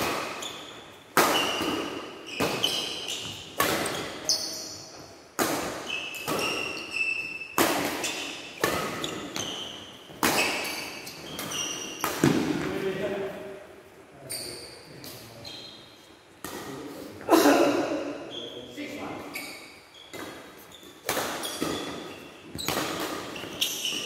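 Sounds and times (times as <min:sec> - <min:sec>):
rackets striking shuttlecock: 0:00.0 - 0:04.4, 0:07.5 - 0:12.7, 0:20.1 - 0:24.0
shoes squeaking on court: 0:00.0 - 0:12.8, 0:14.2 - 0:16.5, 0:18.2 - 0:24.0.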